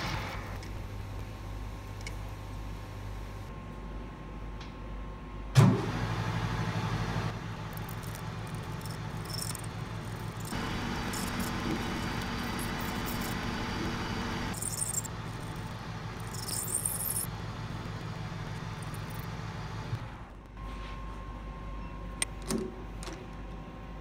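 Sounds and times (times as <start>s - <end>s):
metal lathe motor hum: 7.3s - 20.3s.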